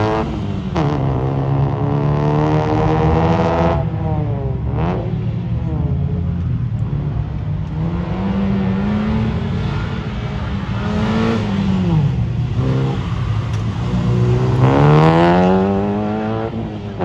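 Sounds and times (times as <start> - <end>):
car engine revving hard: 13.9 - 17.0.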